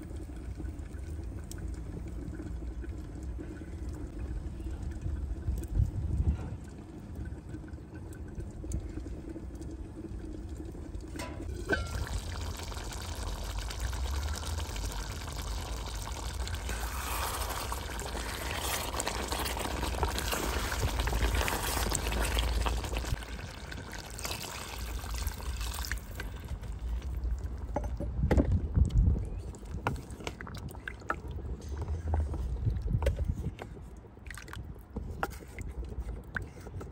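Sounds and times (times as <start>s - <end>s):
curry bubbling in a pot: 0.0s - 28.0s, 28.8s - 36.9s
wooden spoon stirring: 16.2s - 23.2s.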